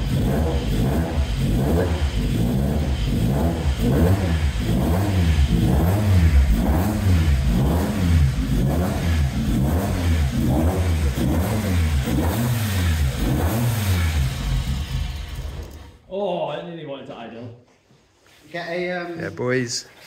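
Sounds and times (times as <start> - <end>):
race engine revving: 0.0 - 16.0.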